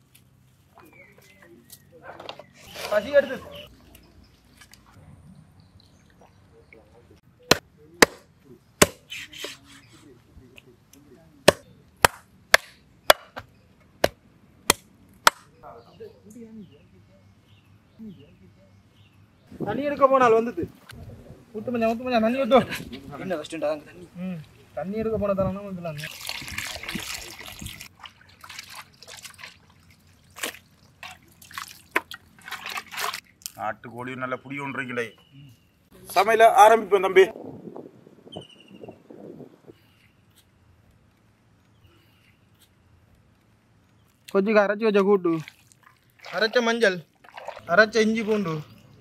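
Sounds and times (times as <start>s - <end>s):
cleaver chopping on wooden block: 7.5s - 8.2s, 8.8s - 9.0s, 11.5s - 15.5s
water dripping and splashing: 25.9s - 33.6s, 45.1s - 49.0s
hands squelching wet meat: 26.0s - 33.6s, 45.3s - 48.9s.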